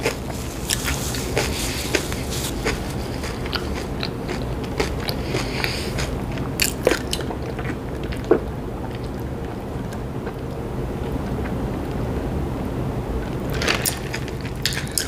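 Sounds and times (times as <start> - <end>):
person chewing: 0.0 - 10.5, 13.5 - 15.0
low background hum: 0.0 - 15.0.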